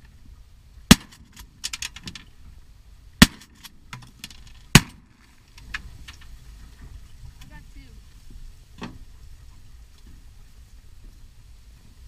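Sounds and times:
shotgun shots: 0.9 - 1.2, 3.2 - 3.5, 4.7 - 5.0.

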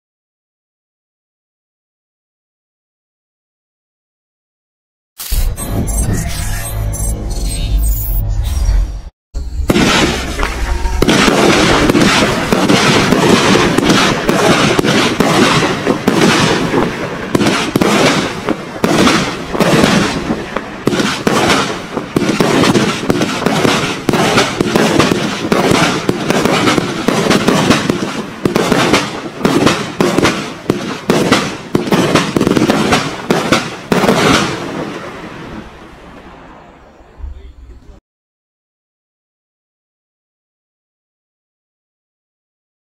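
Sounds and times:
firework launches and bursts: 5.2 - 5.6, 9.6 - 36.5.

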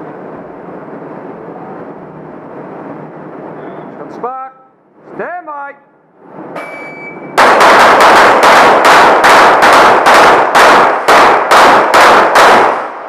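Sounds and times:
shot timer beep: 6.6 - 7.4
rapid pistol fire: 7.4 - 13.0.

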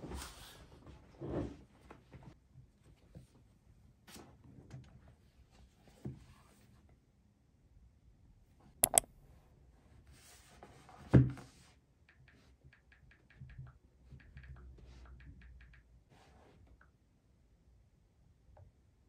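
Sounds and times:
light taps on touchscreen: 8.8 - 9.1
sharp clicks of tablet case: 8.8 - 9.1.

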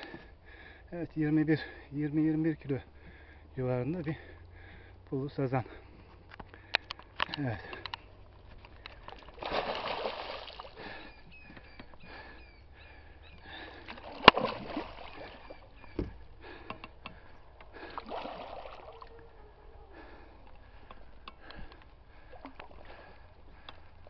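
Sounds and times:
fish splashing in water: 8.8 - 11.2, 13.6 - 16.1, 17.7 - 21.1
dull thump: 15.9 - 16.2.

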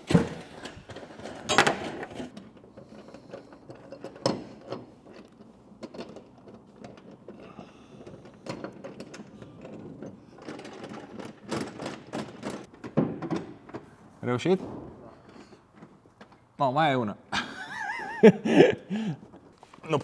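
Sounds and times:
metal hardware rattling and clicking: 0.0 - 14.0.

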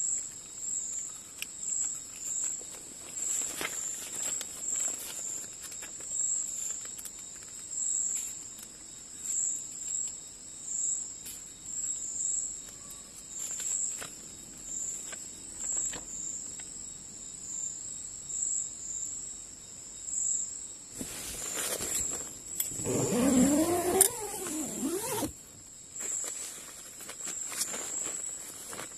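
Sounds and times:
rustling of movement: 0.9 - 7.5, 21.0 - 28.9
paper pages rustling: 1.8 - 8.3, 13.4 - 14.2, 21.0 - 22.8, 26.0 - 28.9
insects trilling: 21.0 - 28.9.

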